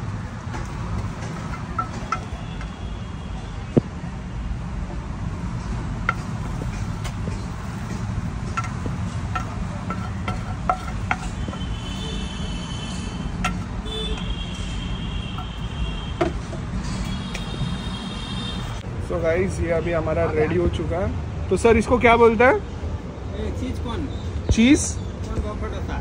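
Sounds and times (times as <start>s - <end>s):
street traffic rumble: 0.0s - 26.0s
metal utensils clicking: 8.5s - 12.2s.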